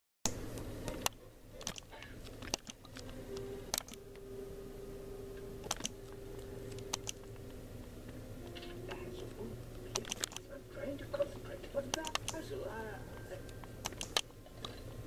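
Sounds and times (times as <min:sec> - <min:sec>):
irregular sharp clicks: 0:00.3 - 0:04.0, 0:05.6 - 0:06.0, 0:06.7 - 0:07.5, 0:09.9 - 0:10.5, 0:11.8 - 0:12.4, 0:13.8 - 0:14.3
low hum: 0:00.3 - 0:15.0
faint steady tone: 0:03.0 - 0:11.6.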